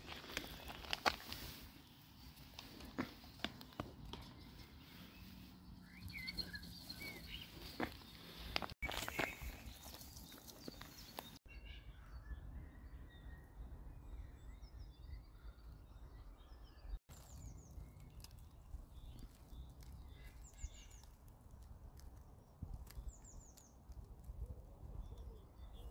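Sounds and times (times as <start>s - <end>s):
small birds chirping: 0.0s - 25.9s
wind rumble on microphone: 12.3s - 25.9s.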